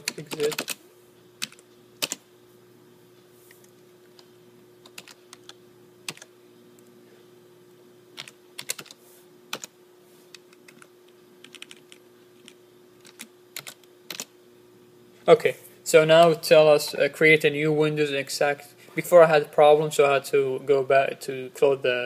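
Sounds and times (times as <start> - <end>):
computer keyboard typing: 0.0 - 0.8, 1.4 - 2.2, 4.8 - 6.3, 8.2 - 9.7, 10.4 - 14.3
faint steady hum: 0.0 - 22.0.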